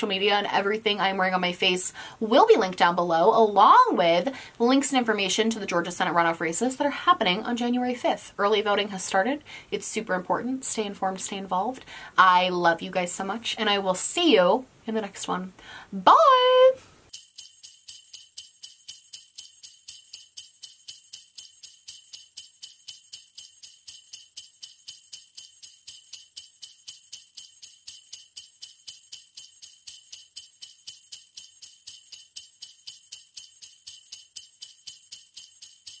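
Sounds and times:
jingle bells shaken: 17.1s - 36.0s.

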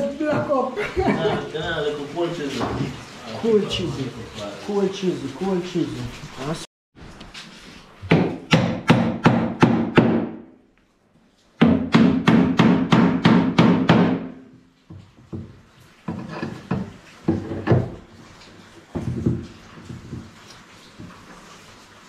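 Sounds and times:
hammer striking wooden cupboard: 8.1s - 10.5s, 11.6s - 14.3s.

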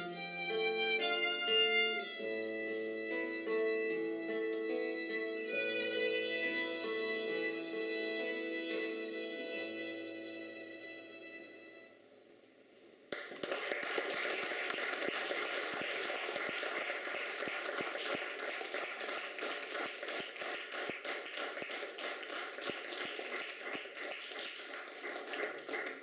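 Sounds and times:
audience applause: 13.1s - 26.0s.

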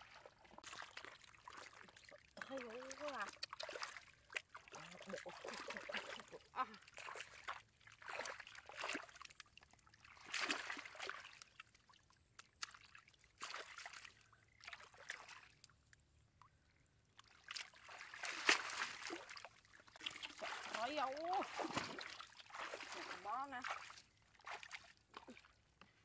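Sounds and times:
hands splashing in water: 0.6s - 11.8s, 17.2s - 25.5s.

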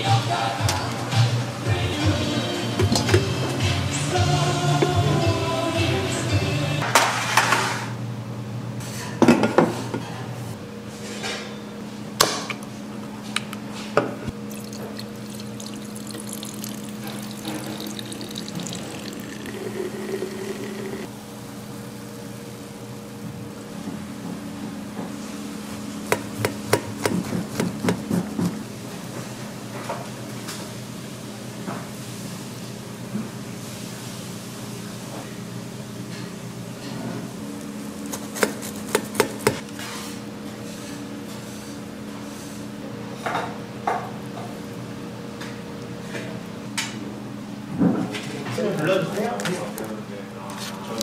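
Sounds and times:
steady hum: 14.2s - 29.6s.

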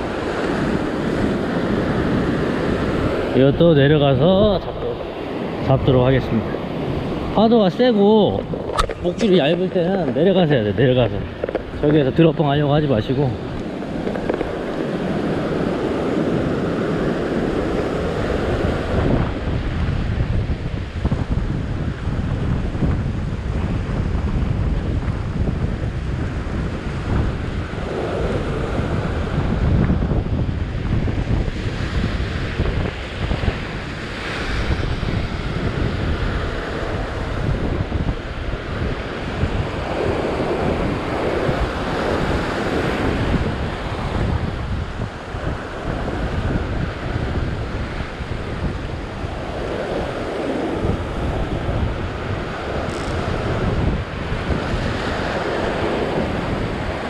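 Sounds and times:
surf breaking over rocks: 0.0s - 20.4s
wind buffeting microphone: 0.0s - 57.0s.

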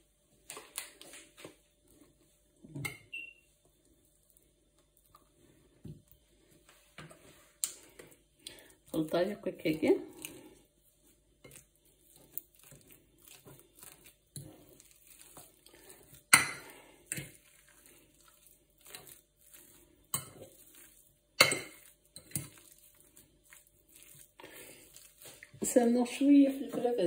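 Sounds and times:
fork mashing potatoes: 7.1s - 26.0s.

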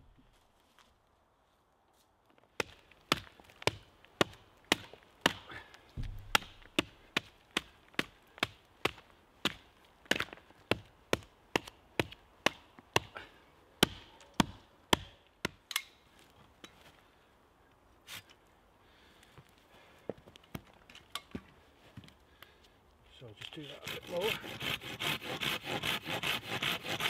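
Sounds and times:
hatchet chopping into log: 2.6s - 13.1s, 13.8s - 15.8s.

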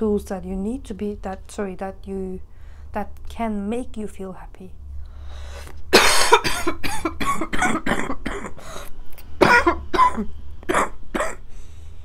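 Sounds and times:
woman coughing: 5.9s - 8.6s, 9.4s - 11.4s.

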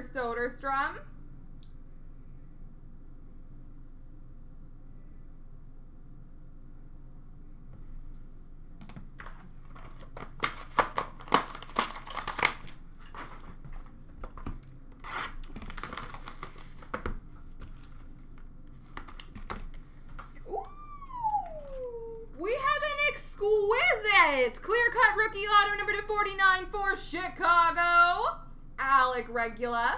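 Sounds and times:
plastic and cardboard packaging tearing: 9.2s - 17.9s.

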